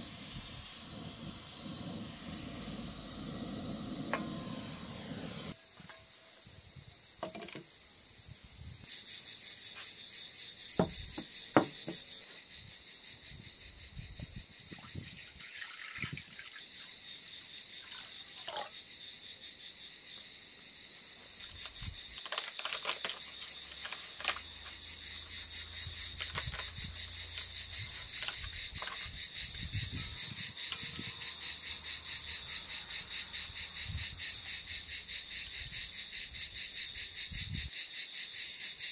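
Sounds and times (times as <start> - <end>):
crickets chirping: 0.0 - 38.9
knocks on a wooden table: 10.8 - 12.0.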